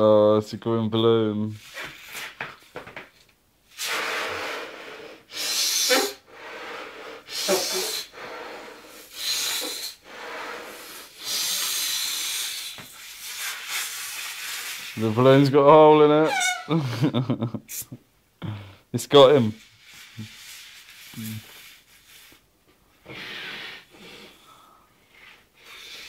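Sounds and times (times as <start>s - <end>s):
hissing rushes of breath: 3.7s - 15.0s, 23.0s - 26.0s
short falling squeaks: 16.2s - 16.8s.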